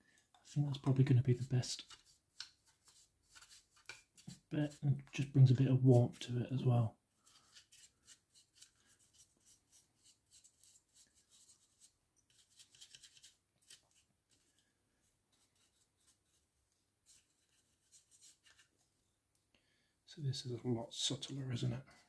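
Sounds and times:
brush scratching strokes: 0.4s - 5.2s, 7.2s - 18.8s.

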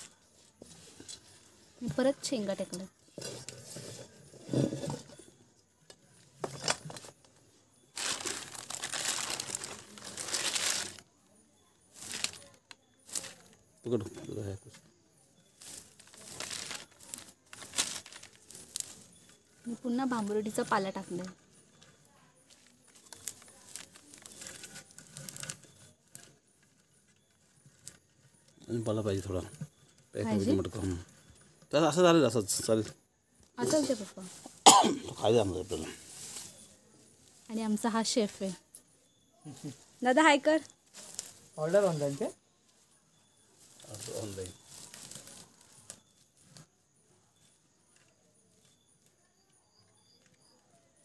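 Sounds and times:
leaves crinkling and rustling: 6.6s - 11.1s, 11.8s - 13.6s, 15.4s - 29.4s, 33.6s - 38.6s, 39.4s - 46.7s.

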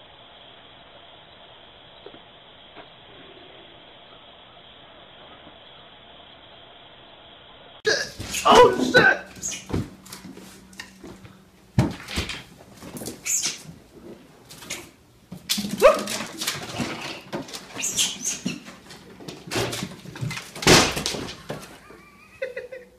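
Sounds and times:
pet animal calling: 8.2s - 9.7s, 13.2s - 13.6s, 17.8s - 18.7s.

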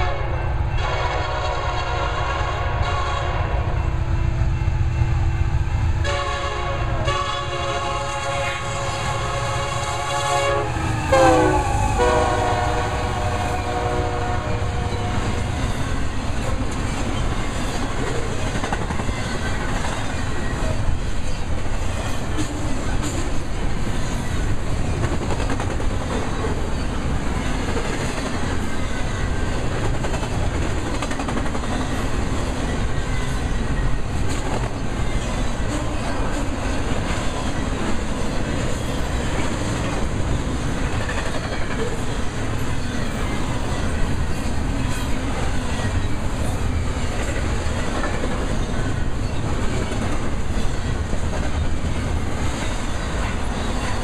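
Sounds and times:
locomotive horn blowing: 0.0s - 4.0s, 6.0s - 15.4s
train rushing and clattering by: 0.0s - 54.0s.

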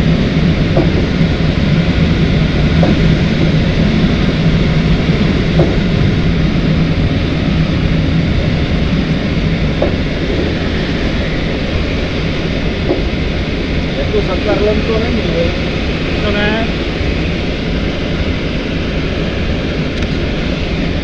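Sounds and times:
airflow rushing in cockpit: 0.0s - 21.0s
plane engine droning: 0.0s - 21.0s.

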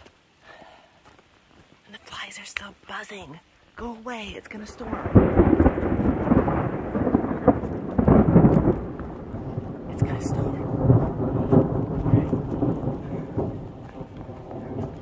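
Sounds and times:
light rain falling: 0.0s - 15.0s
thunder rumbling: 4.7s - 15.0s.

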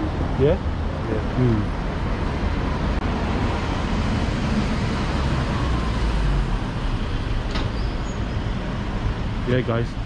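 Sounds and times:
road traffic rumble: 0.0s - 10.0s.

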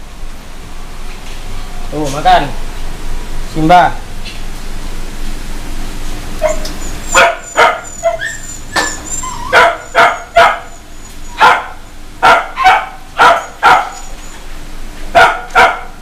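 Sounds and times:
dog barking: 6.4s - 8.3s, 9.4s - 10.8s, 11.4s - 14.1s, 15.1s - 16.0s.

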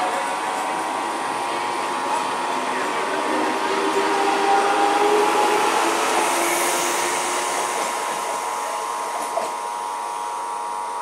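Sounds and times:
train running on rails: 0.0s - 11.0s.

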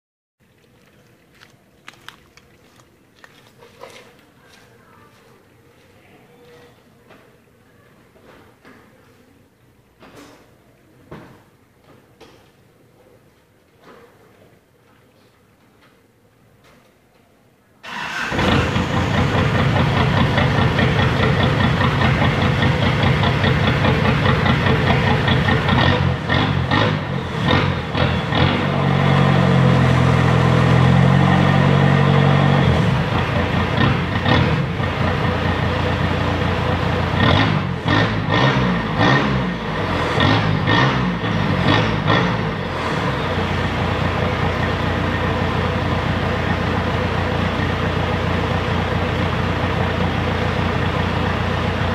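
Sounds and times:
diesel engine idling and revving: 17.9s - 51.9s.

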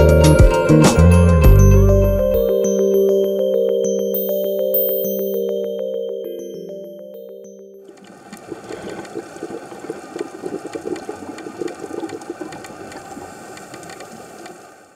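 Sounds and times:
synth music: 0.0s - 8.0s
water-like bubbling and crackling: 7.9s - 14.9s.

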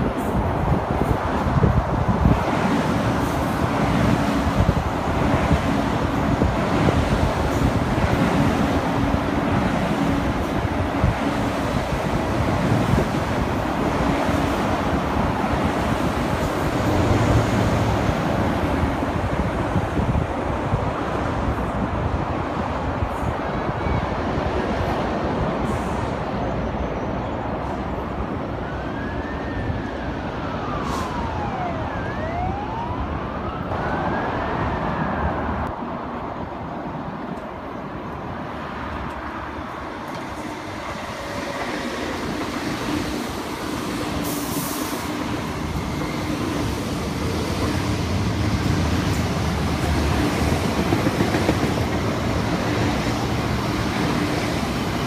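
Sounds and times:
train wheel and motor noise: 0.0s - 32.3s, 33.6s - 55.0s
electric train whine: 38.9s - 55.0s.

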